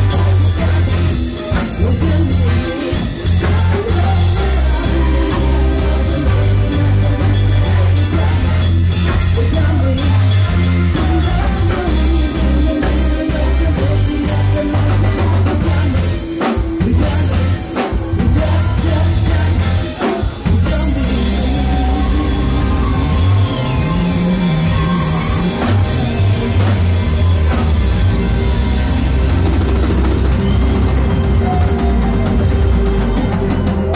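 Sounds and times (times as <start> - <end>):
person singing into microphone: 0.0 - 25.8
drum kit: 0.0 - 33.9
electric bass guitar: 0.0 - 33.9
keyboards: 0.0 - 33.9.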